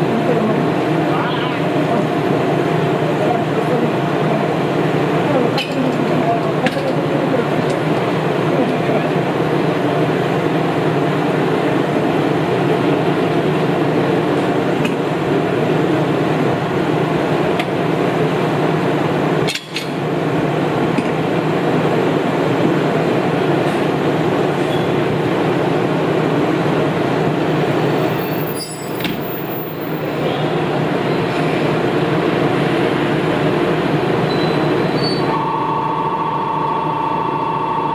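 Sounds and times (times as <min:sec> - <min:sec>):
diesel railcars idling: 0:00.0 - 0:37.9.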